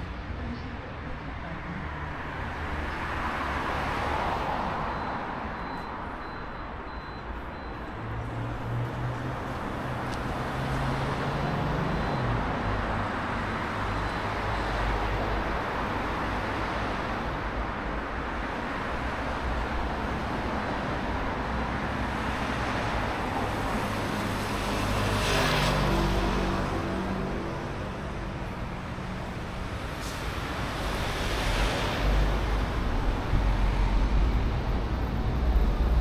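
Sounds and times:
cars passing: 0.0s - 36.0s
steady road noise: 0.0s - 36.0s.

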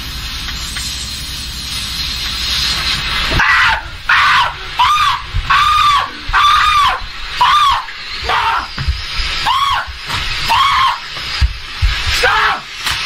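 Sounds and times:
man screaming: 3.4s - 8.8s, 9.5s - 11.0s, 12.2s - 12.7s.

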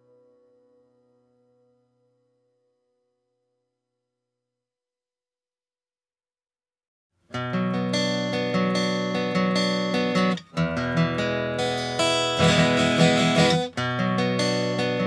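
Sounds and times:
acoustic guitar playing chords: 7.3s - 15.0s.

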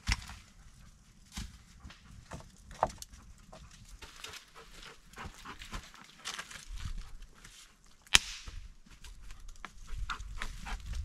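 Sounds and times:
sticks and firewood being handled: 0.0s - 11.0s.

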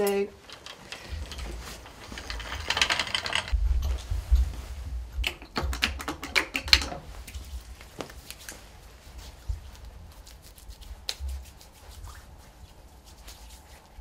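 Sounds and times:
monitor stand clicking and rattling: 0.4s - 3.6s
hands rubbing: 5.8s - 14.0s.

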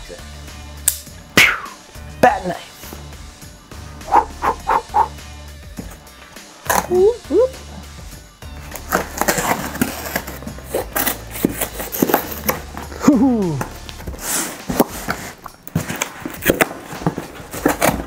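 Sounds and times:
tape ripping and scratching: 8.6s - 18.0s
knife slitting packing tape: 8.7s - 12.6s, 14.2s - 18.0s.

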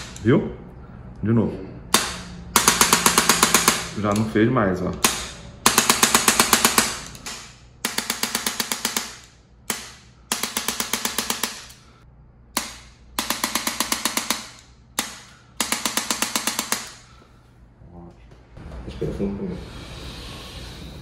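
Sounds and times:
adjusting gun rapid clicking strikes: 1.9s - 4.3s, 5.0s - 11.8s, 12.6s - 17.0s.

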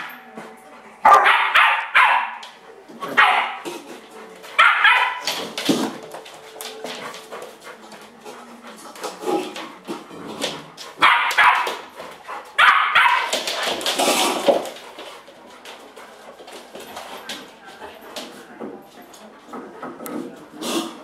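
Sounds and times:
dogs barking: 1.0s - 5.3s, 11.0s - 13.5s.

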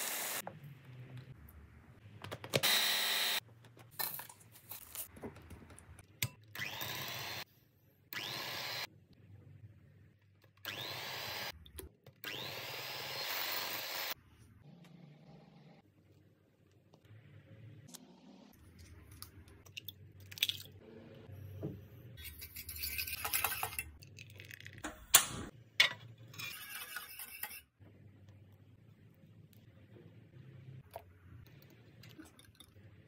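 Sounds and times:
electric hand mixer whining: 0.0s - 0.4s, 12.3s - 14.2s.

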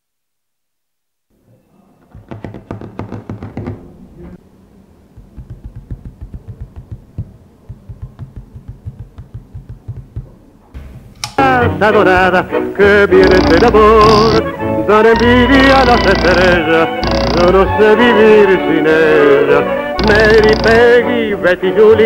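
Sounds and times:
fingers tapping on table: 5.2s - 10.4s.

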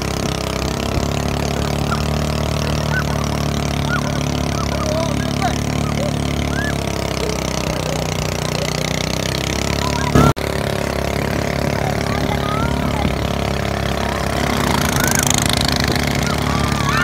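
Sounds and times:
motorboat engine running: 0.0s - 17.0s.

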